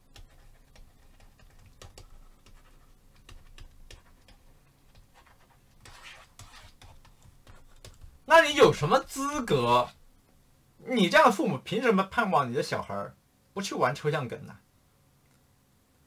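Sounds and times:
stylus tapping on pen tablet: 0:00.1 - 0:08.2.

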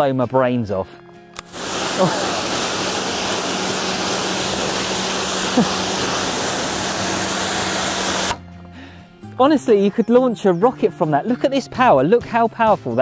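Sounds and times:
pressure washer jet spraying: 0:01.4 - 0:08.4.

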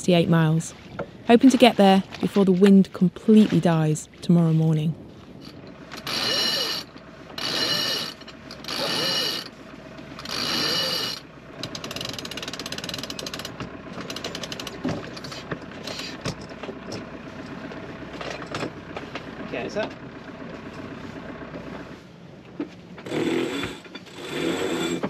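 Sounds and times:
deck winch ratcheting clicks: 0:05.4 - 0:17.1, 0:23.0 - 0:25.0.

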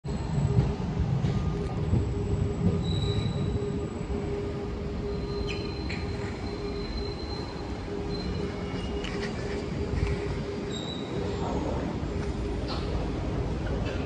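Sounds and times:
train wheel rumble: 0:00.0 - 0:14.0
steady whine: 0:00.1 - 0:14.0
high wheel squeal: 0:02.8 - 0:03.8, 0:05.1 - 0:09.4, 0:10.6 - 0:11.4.

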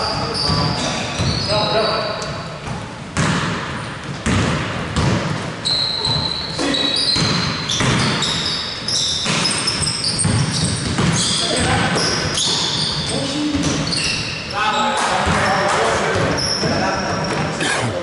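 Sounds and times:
sneakers squeaking on court: 0:00.0 - 0:17.6
basketball bouncing on wooden floor: 0:02.6 - 0:05.4, 0:07.1 - 0:08.4, 0:09.2 - 0:12.4.

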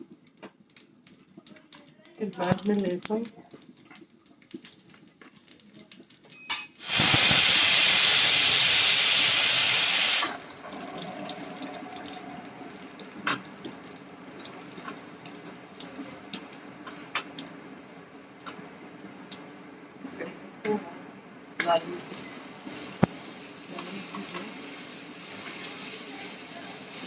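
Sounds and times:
ingredients sizzling in hot oil: 0:06.8 - 0:17.4, 0:21.5 - 0:27.0.

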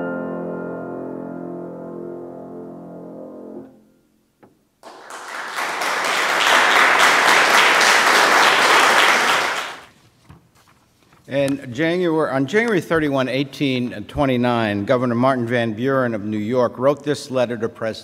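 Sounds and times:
grand piano chord: 0:00.0 - 0:04.0
audience applauding: 0:04.8 - 0:09.9.

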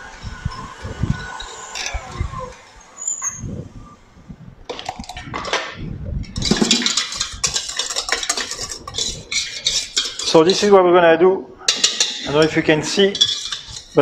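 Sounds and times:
whisk scraping a metal bowl: 0:06.4 - 0:10.7, 0:11.7 - 0:14.0.

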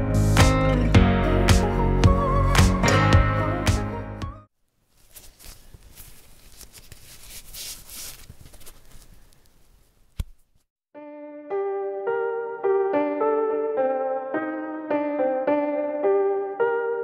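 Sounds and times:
faint crackling rustling: 0:04.7 - 0:10.7
electric piano music: 0:11.0 - 0:17.0.

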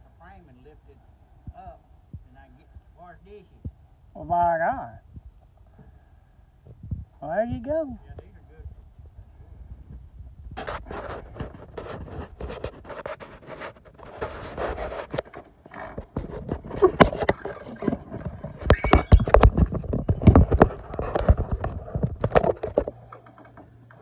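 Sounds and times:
phone being handled: 0:10.6 - 0:24.0.

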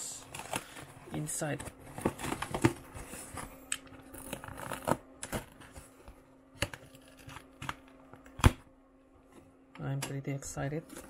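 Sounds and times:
hands handling cardboard box: 0:00.2 - 0:07.7.

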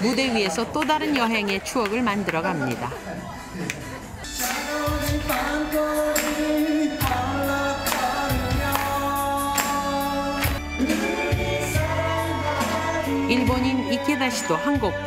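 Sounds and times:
karaoke backing track with drum beat: 0:03.5 - 0:15.0
person singing: 0:04.3 - 0:15.0.

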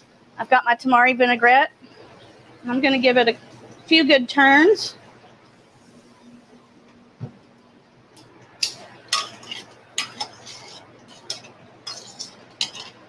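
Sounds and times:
metal tongs clinking on pan: 0:08.6 - 0:13.0.

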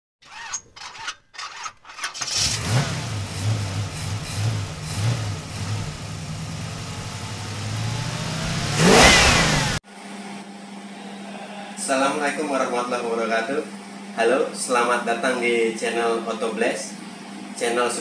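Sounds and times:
car engine cranking and idling: 0:01.5 - 0:09.8.

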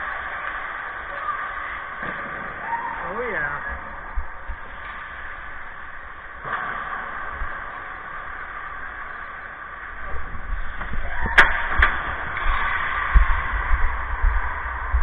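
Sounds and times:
low rumble: 0:02.4 - 0:15.0.

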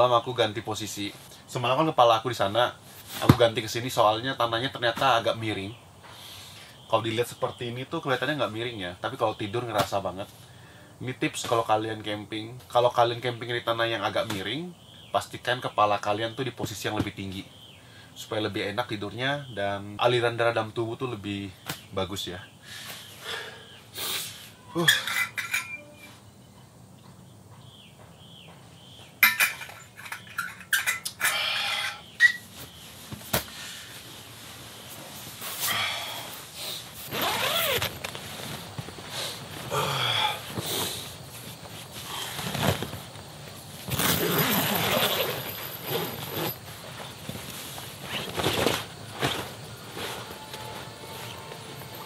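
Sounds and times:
handling clicks and clatters: 0:29.2 - 0:31.2
animal and bird calls: 0:29.8 - 0:33.1.

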